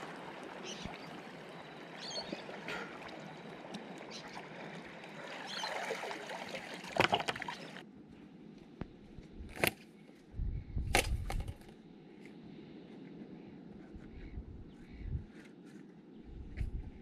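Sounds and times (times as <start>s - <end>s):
water sloshing and splashing: 0.0s - 7.9s.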